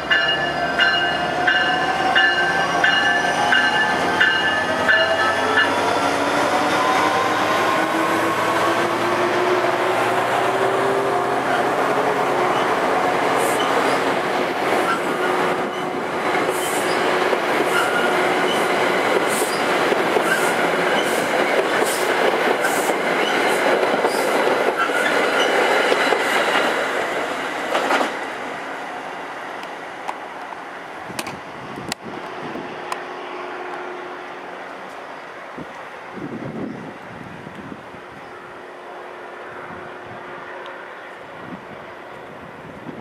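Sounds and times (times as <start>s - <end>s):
train wheels rumbling on rail: 0.0s - 29.0s, 29.6s - 43.0s.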